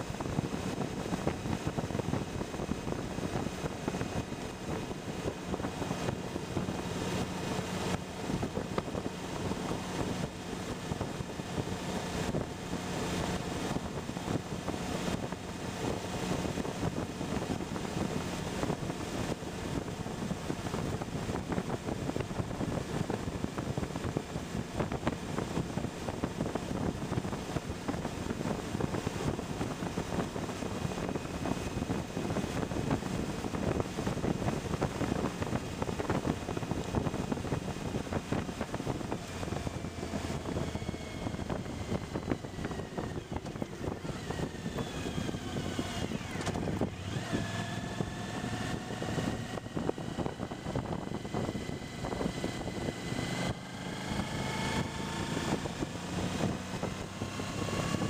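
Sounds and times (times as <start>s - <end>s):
motorcycle engine and road noise: 0.0s - 58.0s
wind buffeting microphone: 0.0s - 58.0s
gliding whines: 22.3s - 58.0s.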